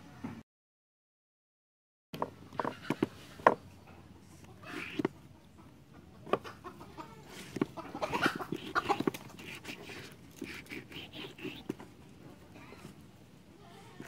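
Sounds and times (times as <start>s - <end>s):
chickens clucking: 2.2s - 14.0s
glue brush scraping rubber: 4.6s - 5.1s, 7.4s - 11.9s.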